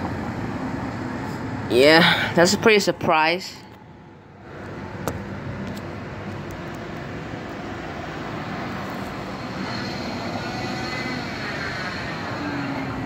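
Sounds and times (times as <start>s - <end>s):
traffic engine drone: 0.0s - 13.0s.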